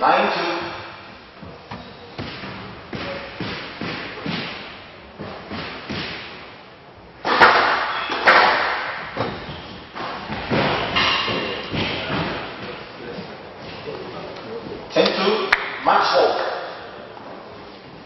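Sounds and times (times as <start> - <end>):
squash ball hits: 2.2 - 6.5, 7.2 - 12.4.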